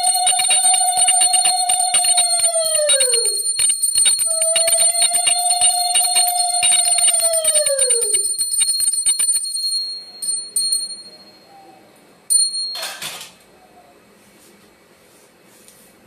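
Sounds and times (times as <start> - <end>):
hand bell ringing: 0.0 - 11.4, 12.3 - 13.0.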